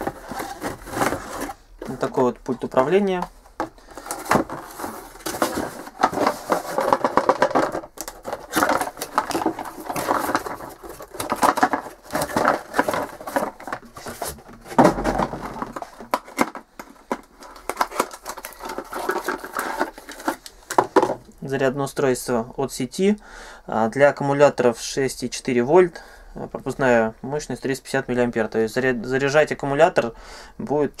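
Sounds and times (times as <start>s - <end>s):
cardboard packaging rustling: 0.0s - 21.3s.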